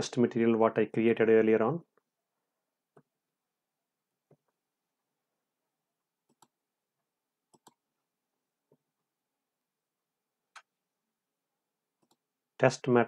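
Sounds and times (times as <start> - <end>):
computer mouse clicks: 6.2 - 6.6, 7.5 - 7.8, 12.0 - 12.2.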